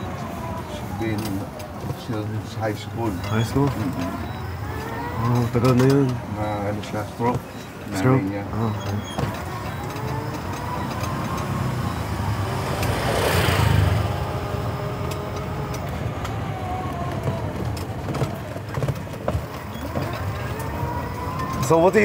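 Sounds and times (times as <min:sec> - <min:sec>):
electric motor whine: 0:08.0 - 0:17.3.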